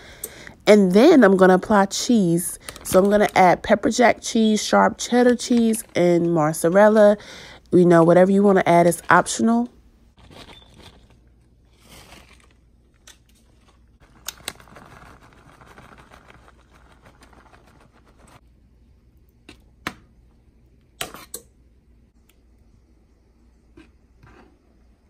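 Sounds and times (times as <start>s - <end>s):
plastic bag rustling: 10.2s - 18.4s.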